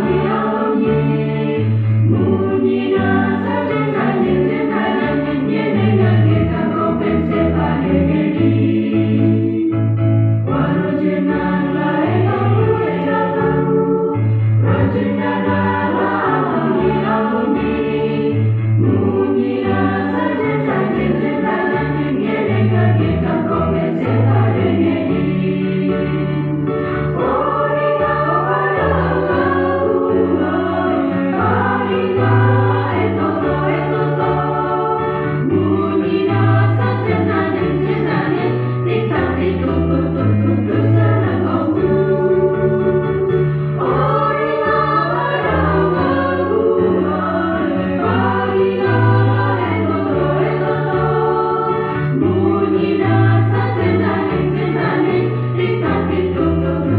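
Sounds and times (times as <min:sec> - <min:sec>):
mixed choir singing in harmony: 0:00.0 - 0:56.9.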